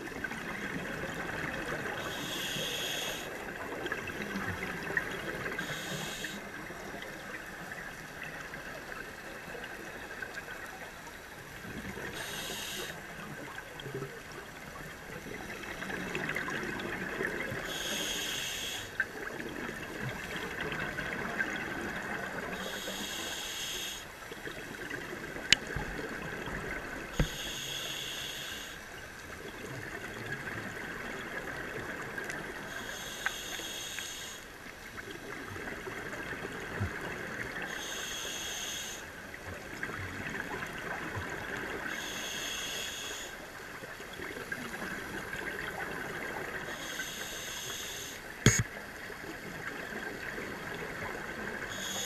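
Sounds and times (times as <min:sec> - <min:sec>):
scuba regulator breathing bubbles: 0:05.4 - 0:06.4, 0:12.1 - 0:13.0, 0:27.1 - 0:28.8, 0:46.7 - 0:48.7
sharp clicks: 0:48.4 - 0:48.7.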